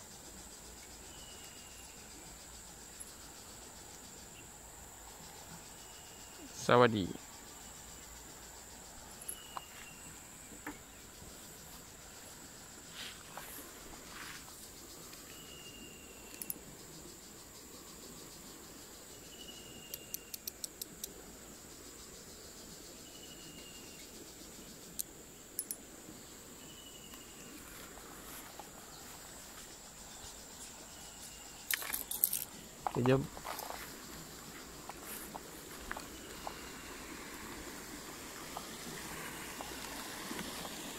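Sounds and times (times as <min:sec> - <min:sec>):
insect drone: 0:00.0 - 0:40.9
sharp clicks: 0:19.9 - 0:21.2, 0:25.0 - 0:25.8.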